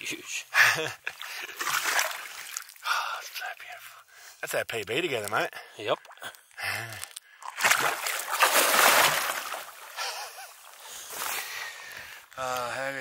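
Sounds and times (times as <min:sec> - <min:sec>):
water sloshing: 0:01.1 - 0:02.8, 0:07.4 - 0:11.2
fish splashing water: 0:01.5 - 0:02.8, 0:07.4 - 0:10.7.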